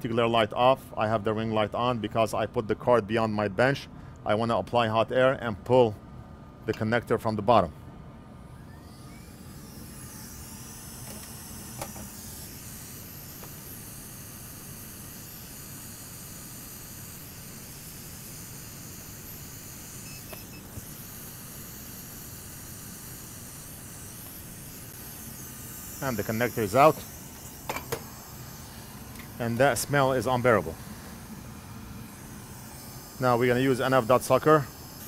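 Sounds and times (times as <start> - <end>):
hot air blower hiss: 8.7 - 35.0.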